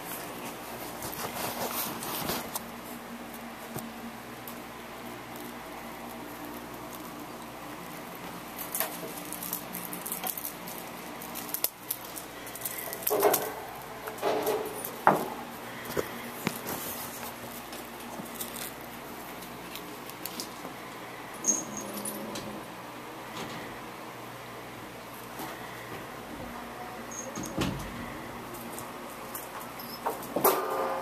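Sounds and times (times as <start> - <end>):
kittens pattering on floor: 5.3 - 21.0.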